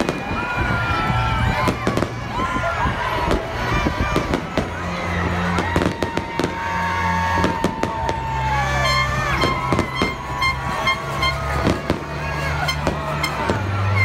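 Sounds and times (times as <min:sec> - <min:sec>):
fireworks bangs: 0:00.0 - 0:02.5, 0:03.2 - 0:14.0
fireworks whistling: 0:08.9 - 0:14.0.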